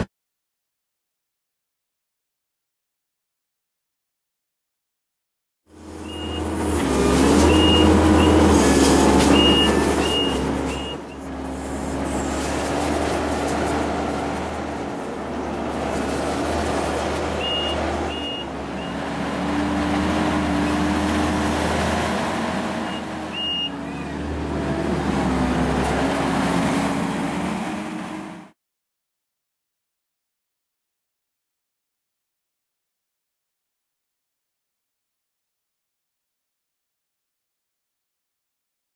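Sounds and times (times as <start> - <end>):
diesel engine running under load: 5.7 - 28.5
backup alarm beeping: 7.5 - 8.5, 9.3 - 11.2, 17.4 - 19.0.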